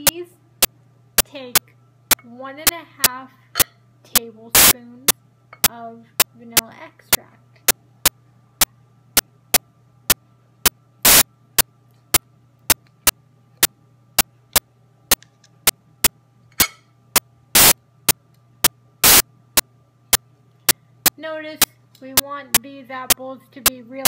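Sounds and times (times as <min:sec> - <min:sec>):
electrical hum: 0:00.0 - 0:24.0
noise bursts: 0:04.5 - 0:04.8, 0:06.2 - 0:16.2, 0:17.1 - 0:21.8
sharp digital clicks: 0:11.0 - 0:11.2, 0:17.6 - 0:17.8, 0:18.6 - 0:20.8.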